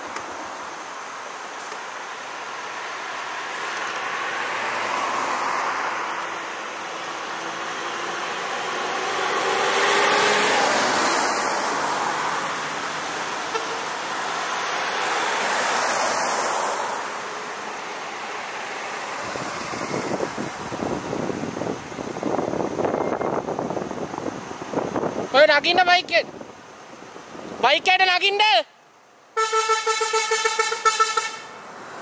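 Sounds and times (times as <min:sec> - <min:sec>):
vehicles passing: 0:00.0 - 0:32.0.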